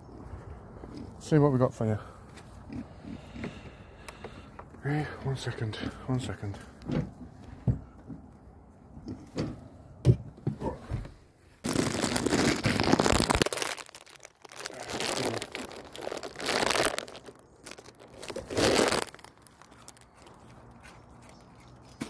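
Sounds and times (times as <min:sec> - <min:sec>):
rough crinkling and rustling: 0:10.8 - 0:22.0.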